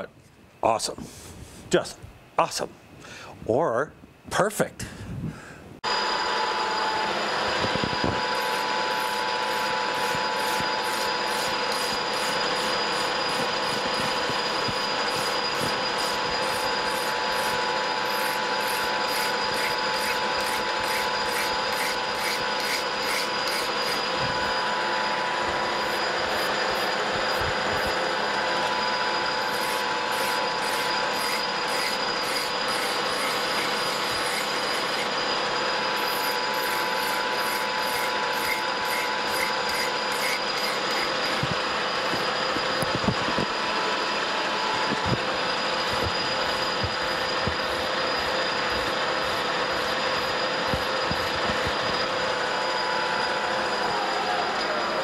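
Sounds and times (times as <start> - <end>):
lathe gear whine: 5.8 - 55.0
file scratching on metal: 15.1 - 24.0, 29.5 - 35.1, 36.0 - 41.4.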